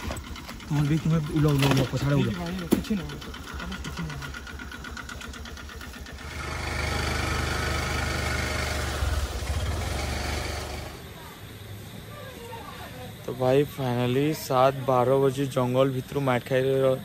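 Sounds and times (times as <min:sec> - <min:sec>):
scooter engine idling: 0:00.0 - 0:11.9.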